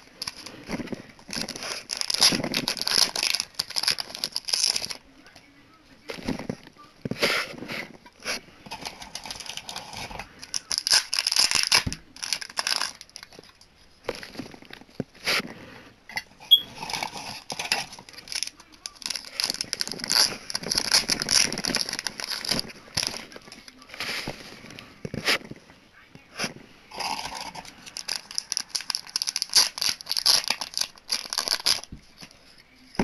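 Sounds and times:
packaging crinkling: 0:00.0 - 0:05.0, 0:08.7 - 0:14.9, 0:16.7 - 0:24.7, 0:27.0 - 0:32.5.

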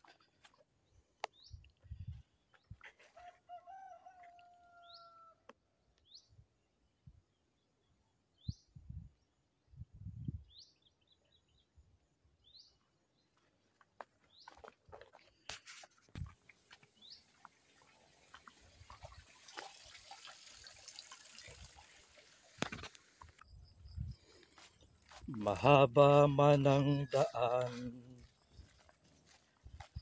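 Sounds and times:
footsteps on dirt path: 0:00.0 - 0:00.6, 0:01.3 - 0:04.3, 0:13.3 - 0:19.2, 0:22.6 - 0:30.0
rooster crowing: 0:03.0 - 0:05.4, 0:26.7 - 0:28.3
birds chirping: 0:16.4 - 0:18.6, 0:22.6 - 0:30.0.

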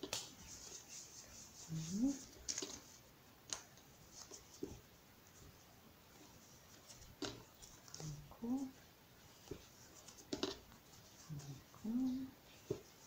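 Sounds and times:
fabric rustling and scraping: 0:00.0 - 0:03.1
person humming: 0:11.3 - 0:12.4.

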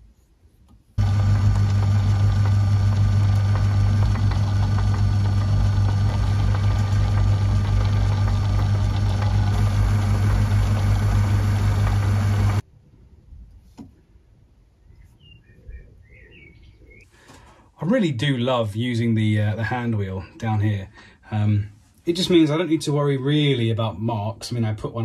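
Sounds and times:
metalworking lathe humming: 0:01.0 - 0:12.6.

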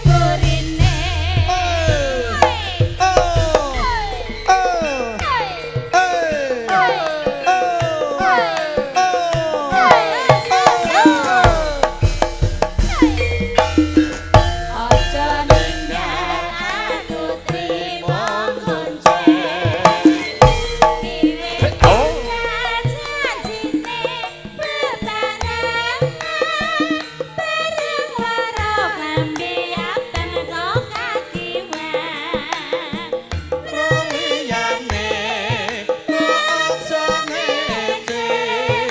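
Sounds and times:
hand drums: 0:00.0 - 0:38.9
sliding melodic line: 0:01.5 - 0:18.8.

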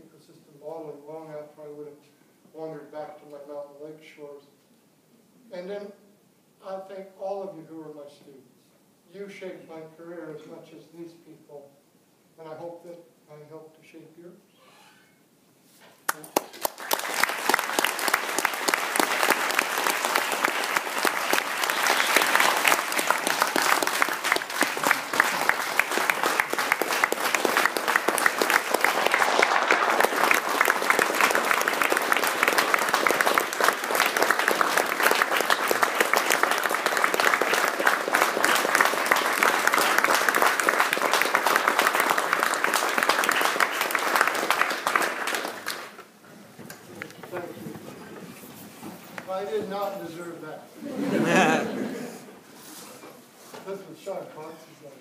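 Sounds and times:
audience applauding: 0:16.1 - 0:46.0, 0:51.1 - 0:52.2.

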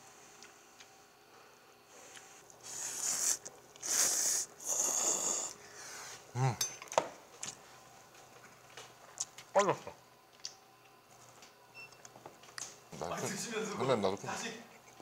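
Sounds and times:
noodles slurped: 0:02.6 - 0:05.6
person humming: 0:03.0 - 0:05.6, 0:06.3 - 0:06.6.

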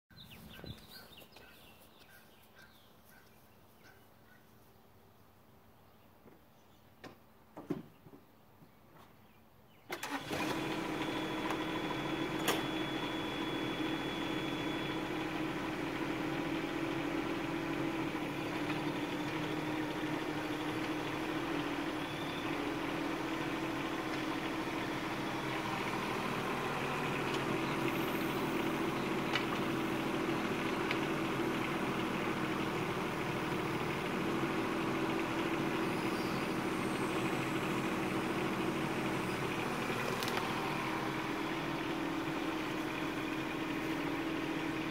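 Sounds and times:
diesel engine idling: 0:09.9 - 0:44.9.

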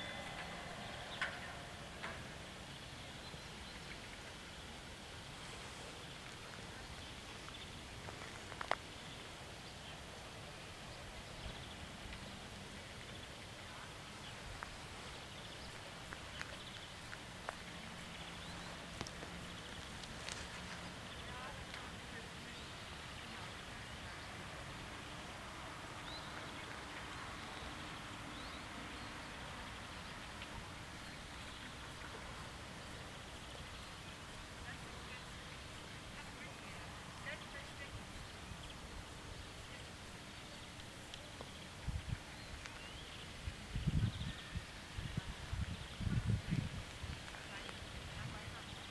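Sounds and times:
faint high chirps: 0:00.0 - 0:02.4
outdoor background noise: 0:00.0 - 0:48.9.

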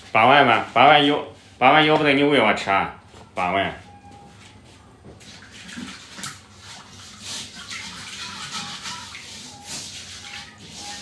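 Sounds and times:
water running and splashing: 0:05.2 - 0:11.0.

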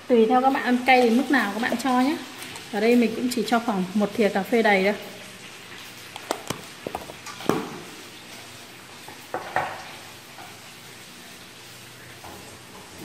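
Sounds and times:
kitchenware clinks and knocks: 0:06.2 - 0:07.8.

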